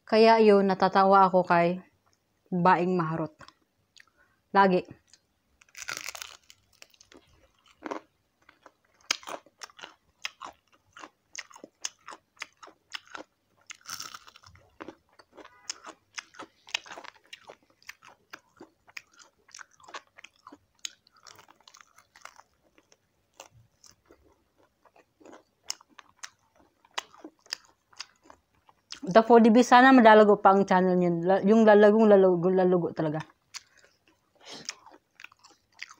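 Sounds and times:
crunchy chewing: 5.0s - 29.0s, 33.3s - 35.9s.

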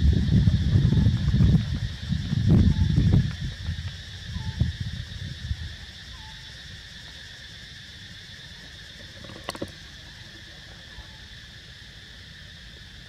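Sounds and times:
low rumbling noise: 0.0s - 3.9s
insects droning: 0.0s - 13.0s.

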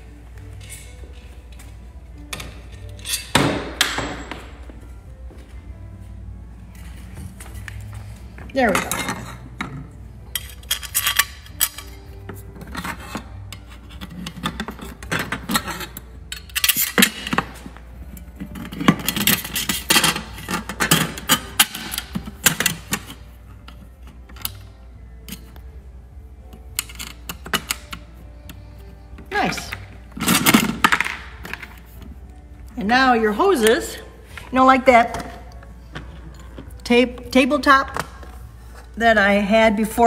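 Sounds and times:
metal brackets clattering: 8.6s - 17.6s.

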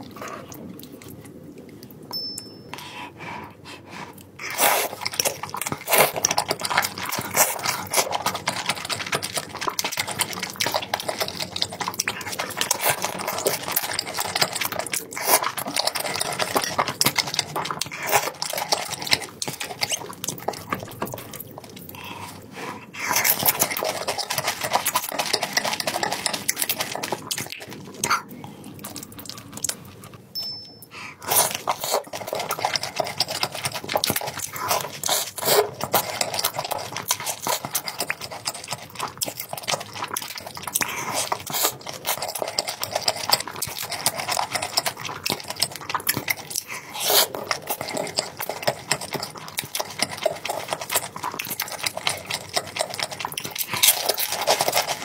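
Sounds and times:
wet chewing and slurping: 0.0s - 2.1s, 2.8s - 55.0s.

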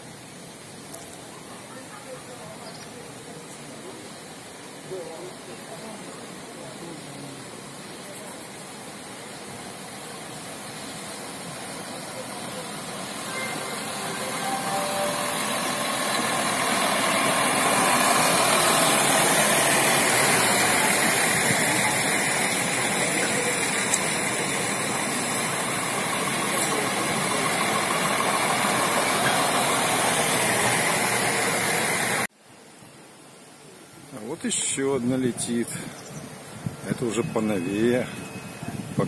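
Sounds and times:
train running past: 4.1s - 32.3s.

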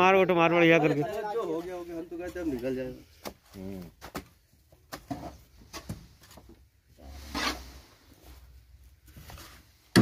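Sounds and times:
rasping scrape of digging: 7.0s - 8.1s.

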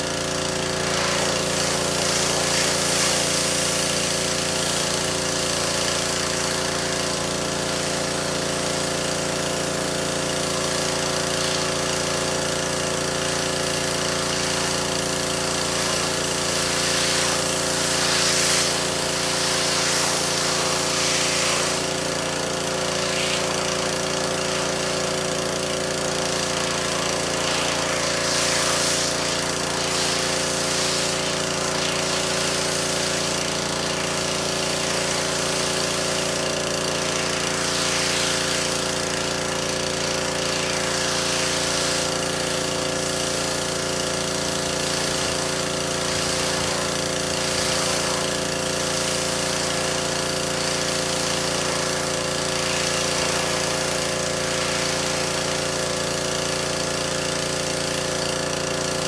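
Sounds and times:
pressure washer hum: 0.0s - 59.0s
water jet hissing: 0.0s - 59.0s.

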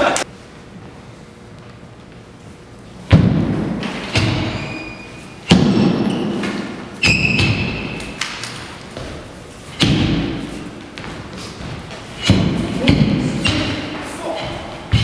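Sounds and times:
heavy foot stamps on hard floor: 8.9s - 15.0s.

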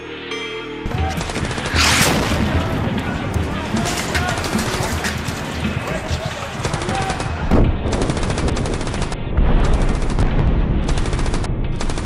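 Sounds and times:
background music: 0.0s - 12.0s
deep rumbling explosions: 0.9s - 12.0s
machine-gun fire: 0.9s - 12.0s
heavy boom: 1.7s - 4.6s, 9.2s - 11.8s.

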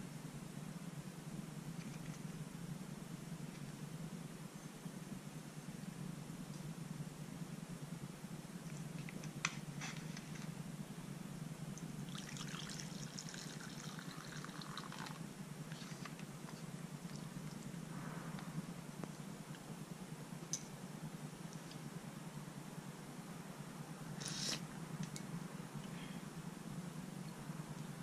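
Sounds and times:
steady low hum: 0.0s - 28.0s
liquid pouring into a bowl: 12.1s - 15.2s.

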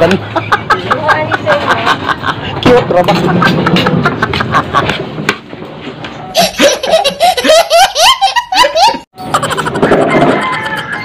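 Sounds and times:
toddler laughing: 6.4s - 11.0s.

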